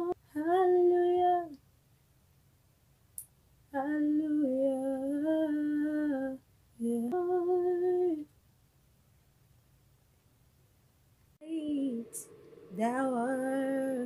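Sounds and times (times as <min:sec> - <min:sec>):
faint click: 0:03.1 - 0:03.4.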